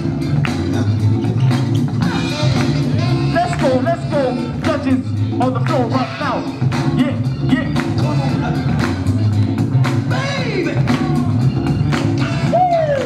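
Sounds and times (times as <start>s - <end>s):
loud dance music: 0.0s - 13.0s.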